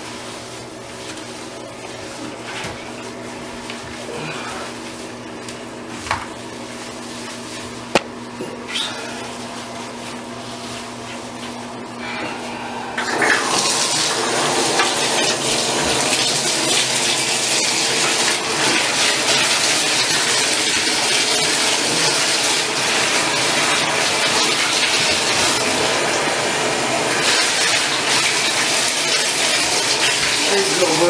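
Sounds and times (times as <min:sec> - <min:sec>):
tap water pouring into bathtub: 0:13.0 - 0:31.0.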